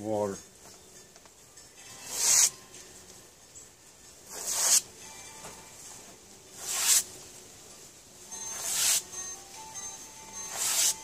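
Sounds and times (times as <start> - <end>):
newspaper tearing by hand: 2.1 - 2.5, 4.3 - 4.9, 6.6 - 7.1, 8.5 - 9.0, 10.5 - 11.0.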